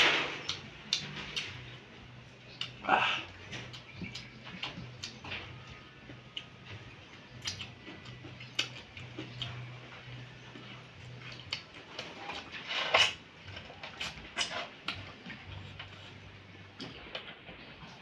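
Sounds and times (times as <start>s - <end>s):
faint low hum: 0.0s - 18.0s
wet chewing: 2.5s - 5.4s, 7.2s - 17.2s
lip-smacking clicks: 7.4s - 9.6s.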